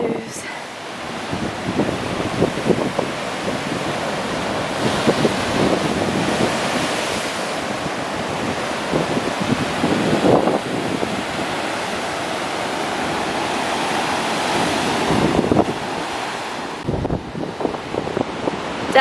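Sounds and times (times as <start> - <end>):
wind buffeting microphone: 0.0 - 19.0
surf breaking against rocks: 0.8 - 18.9.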